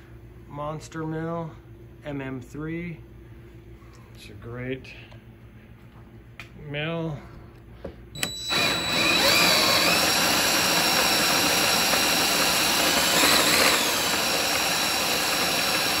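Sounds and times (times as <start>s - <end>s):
grain mill motor whine and grinding: 8.2s - 16.0s.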